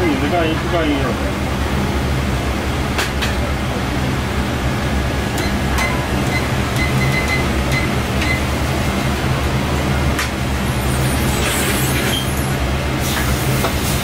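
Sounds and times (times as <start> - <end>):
low mechanical hum: 0.0 - 14.0.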